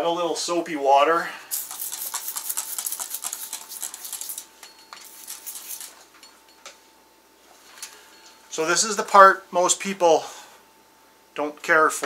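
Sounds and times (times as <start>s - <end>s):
spray bottle spritzing: 1.5s - 6.0s.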